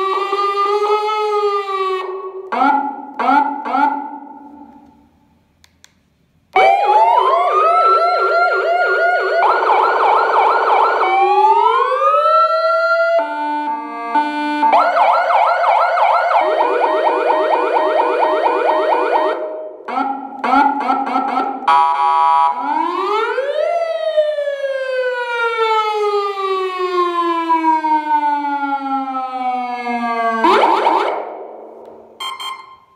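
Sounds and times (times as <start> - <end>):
electronic siren tones: 6.6 - 23.3, 30.1 - 31.3, 32.2 - 32.9.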